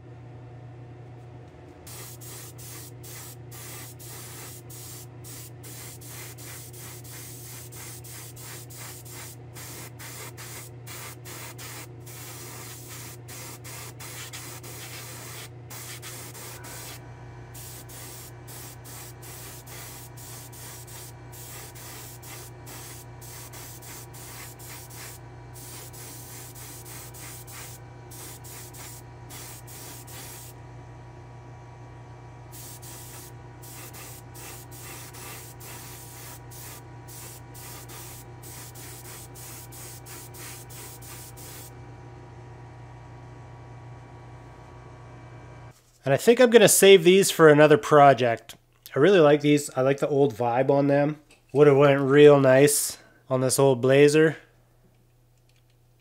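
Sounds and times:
steady low hum: 0.0s - 46.0s
paint sprayer hissing: 1.8s - 30.6s, 32.5s - 41.7s.

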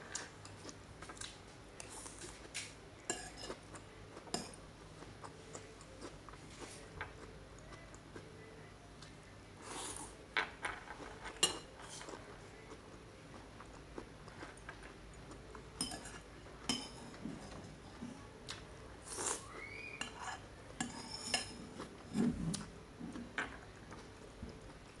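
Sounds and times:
metal spoon clinking on plate: 15.8s - 17.1s, 20.0s - 21.6s.

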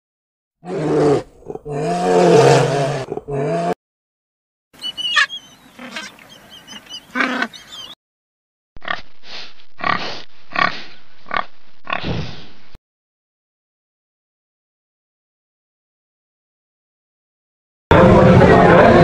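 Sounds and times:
warthog grunting: 0.6s - 3.8s, 9.8s - 12.3s
high chirps: 4.8s - 8.0s.

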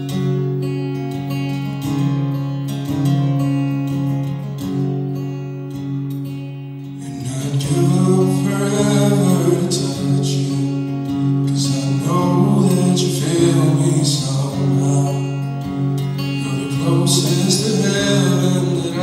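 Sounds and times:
acoustic guitar strumming: 0.0s - 19.0s
man singing: 7.0s - 10.8s, 11.4s - 15.6s, 16.2s - 19.0s.

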